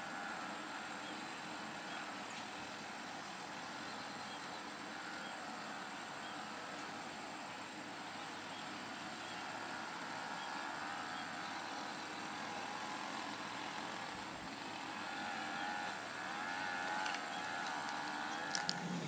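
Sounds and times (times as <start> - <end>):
background hiss: 0.0 - 19.0
distant engine humming: 0.0 - 19.0
sharp clicks: 17.0 - 19.0.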